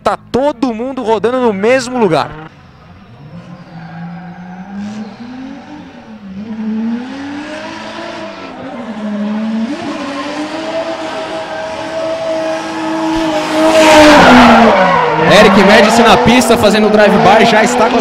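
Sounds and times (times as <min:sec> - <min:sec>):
car engine revving: 0:01.2 - 0:18.0
tyre squeal: 0:03.2 - 0:06.1.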